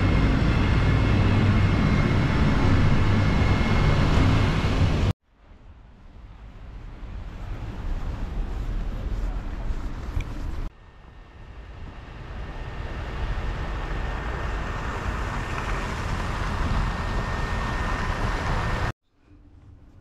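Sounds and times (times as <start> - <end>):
traffic engine and tyre noise: 0.0 - 18.9.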